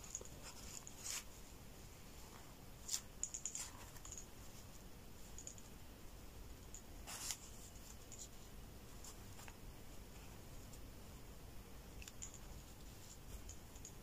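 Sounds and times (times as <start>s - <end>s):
cord rustling and scratching: 0.0s - 1.5s, 2.2s - 5.5s, 7.0s - 10.8s, 12.0s - 14.0s.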